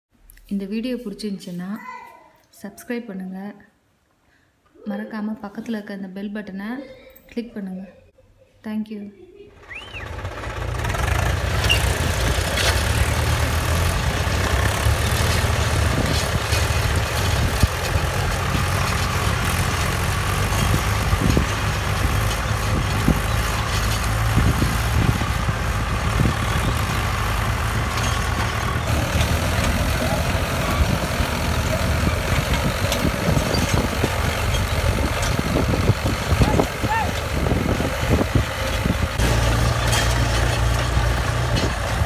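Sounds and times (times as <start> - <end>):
tractor diesel engines under load: 9.5 - 42.0.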